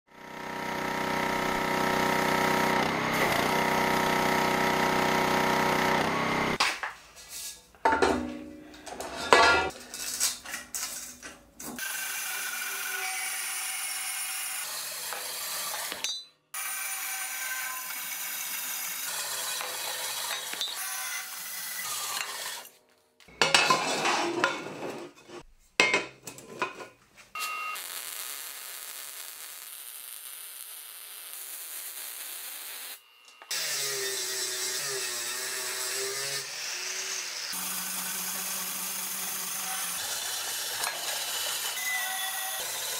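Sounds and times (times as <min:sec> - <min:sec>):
angle grinder grinding steel: 0:00.1 - 0:06.6, 0:11.6 - 0:22.8, 0:29.9 - 0:42.9
band saw cutting steel: 0:00.1 - 0:06.6, 0:11.7 - 0:22.8, 0:31.4 - 0:42.9.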